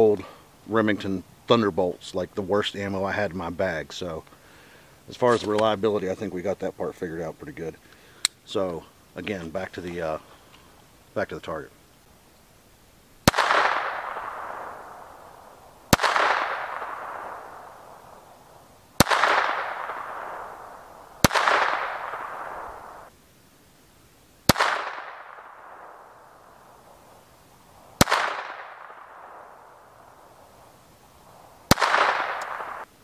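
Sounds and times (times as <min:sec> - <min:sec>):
pistol shots with echo: 0:13.2 - 0:18.1, 0:19.0 - 0:23.1, 0:24.5 - 0:26.1, 0:28.0 - 0:29.8, 0:31.7 - 0:32.9.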